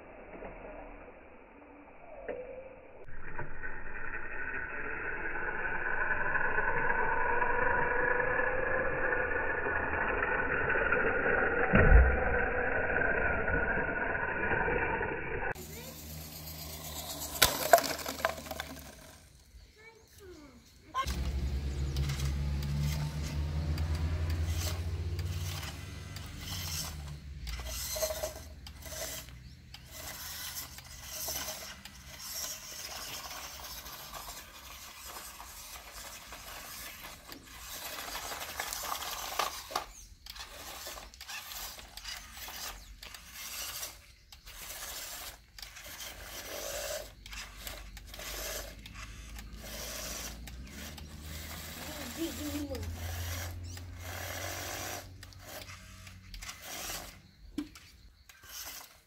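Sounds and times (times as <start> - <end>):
toy truck motor whirring: 3.0 - 59.0.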